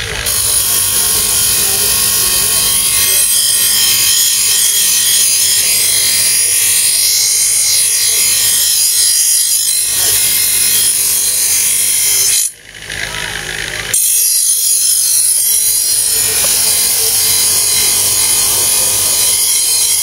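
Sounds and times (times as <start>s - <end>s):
motor whine: 0.0s - 6.4s, 12.2s - 19.9s
buffing wheel friction hiss: 0.3s - 2.6s.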